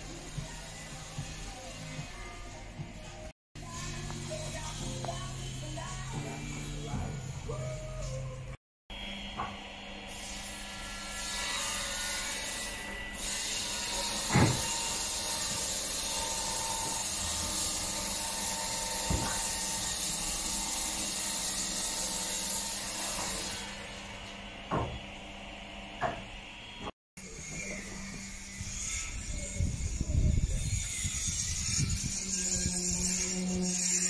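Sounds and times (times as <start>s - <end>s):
sharp knocks: 14.3s - 14.7s.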